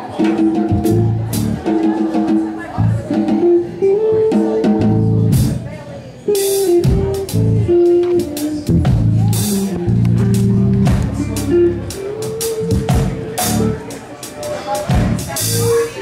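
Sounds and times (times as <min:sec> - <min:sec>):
drum kit with cymbal strokes: 0:00.0 - 0:16.0
bass: 0:00.7 - 0:01.7, 0:02.7 - 0:05.8, 0:06.6 - 0:13.8, 0:14.9 - 0:16.0
electric guitar melody: 0:02.7 - 0:14.0.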